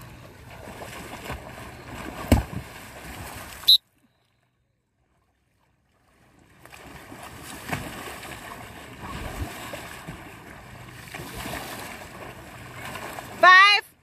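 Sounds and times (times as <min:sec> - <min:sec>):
water churning and splashing: 0:00.0 - 0:04.0, 0:05.0 - 0:14.0
paddle strokes in water: 0:00.0 - 0:04.4, 0:05.0 - 0:13.7
sharp splash: 0:00.5 - 0:03.8, 0:06.6 - 0:10.3.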